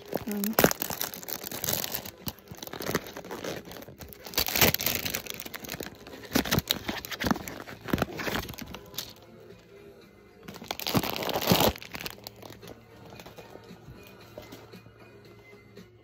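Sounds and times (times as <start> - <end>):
plastic shrink wrap crinkling: 0.0 - 9.2, 10.5 - 13.5.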